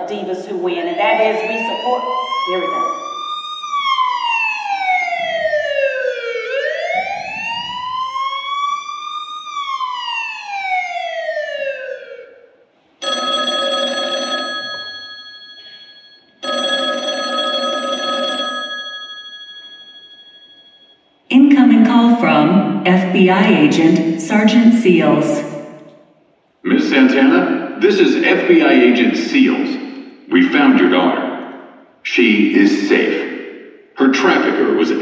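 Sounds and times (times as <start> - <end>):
emergency siren wailing: 1.1 - 12.7
telephone ringing: 13.0 - 21.2.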